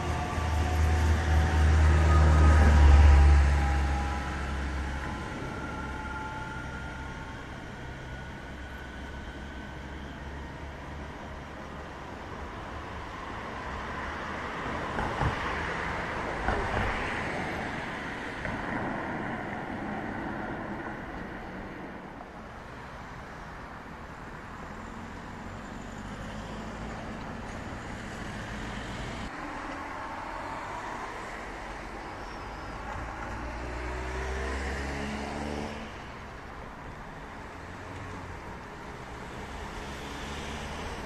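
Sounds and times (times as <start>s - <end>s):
passenger train rolling past: 0.0s - 22.3s
road traffic: 0.0s - 41.0s.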